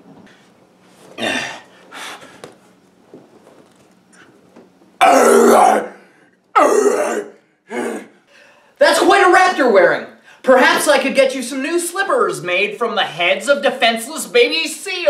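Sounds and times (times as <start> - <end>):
man grunting: 1.2 - 1.7, 5.0 - 6.0, 6.6 - 8.2
man yelling raspily: 5.0 - 5.9.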